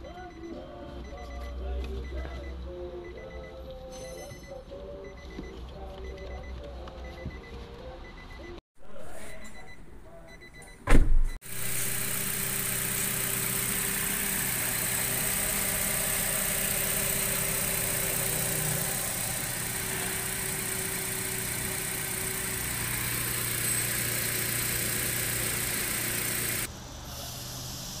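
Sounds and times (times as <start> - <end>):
loud thump: 10.8 - 11.4
car engine idling: 11.5 - 26.7.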